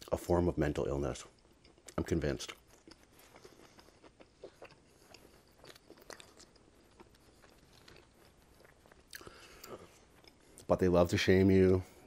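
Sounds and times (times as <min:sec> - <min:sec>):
close chewing: 0:01.2 - 0:10.9
wet mouth clicks and smacks: 0:01.4 - 0:10.4.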